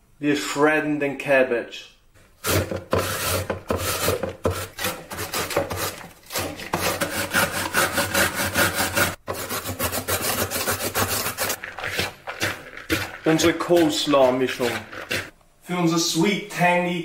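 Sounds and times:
vegetables shredding on mandoline slicer: 2.4 - 15.4.

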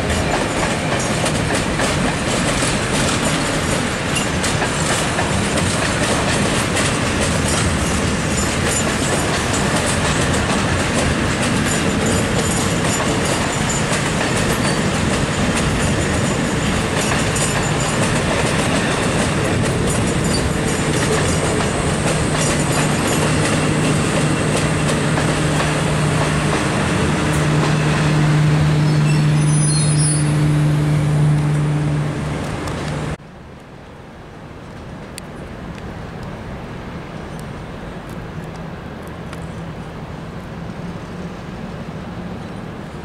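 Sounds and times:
train wheels rumbling on rails: 0.0 - 33.2.

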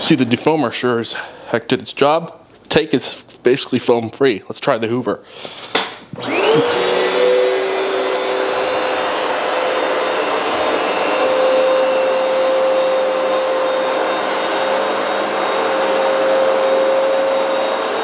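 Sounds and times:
carpet cleaner motor whining: 6.2 - 18.0.

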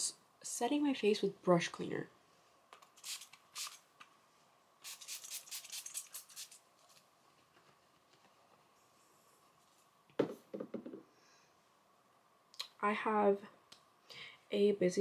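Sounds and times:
spray bottle hissing: 3.0 - 3.8, 4.8 - 6.6.

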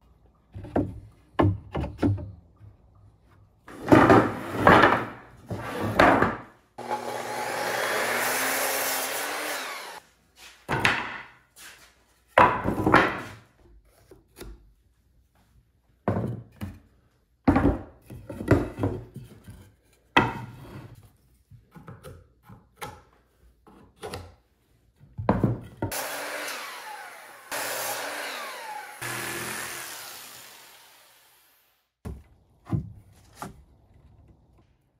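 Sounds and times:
wooden boards knocking: 3.8 - 6.5, 10.7 - 11.3, 12.4 - 13.4
jigsaw cutting wood: 6.8 - 10.0, 25.9 - 31.8.

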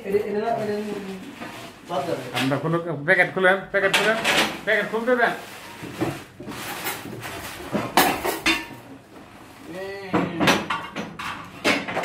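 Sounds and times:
dishes clinking and knocking: 3.8 - 4.6, 5.7 - 9.0, 10.1 - 12.0.

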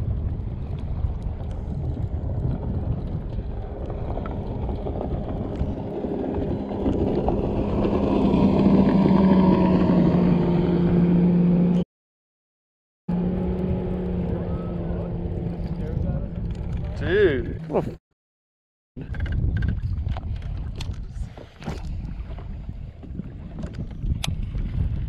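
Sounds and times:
wind noise on microphone: 0.0 - 11.2, 19.0 - 25.0
motorboat engine: 0.0 - 11.8, 13.1 - 18.0.

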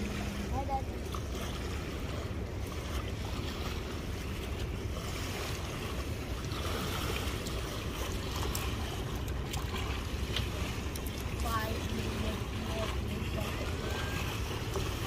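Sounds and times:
sea surf: 0.0 - 15.0.

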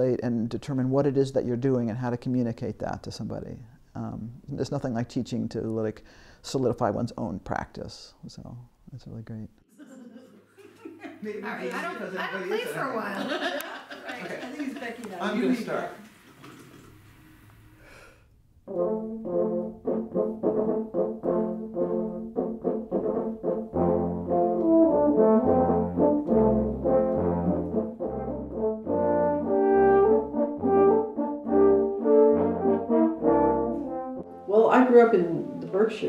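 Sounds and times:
french horns playing: 18.6 - 36.0.

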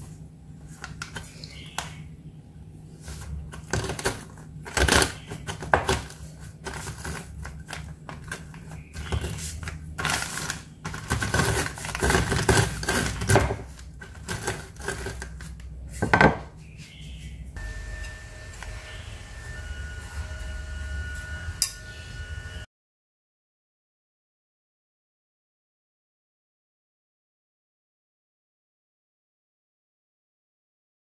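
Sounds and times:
cookies crunching in plastic bag: 3.3 - 15.6.

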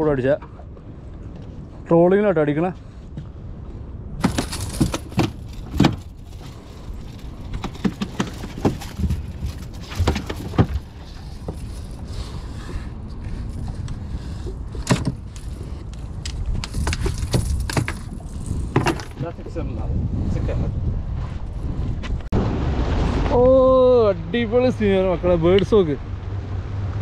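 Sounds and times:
boat engine rumbling: 3.0 - 19.8.

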